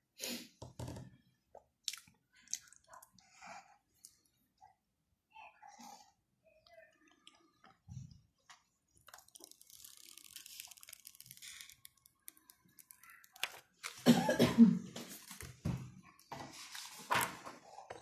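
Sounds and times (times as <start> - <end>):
plastic film peeling crackle: 9.0 - 14.1.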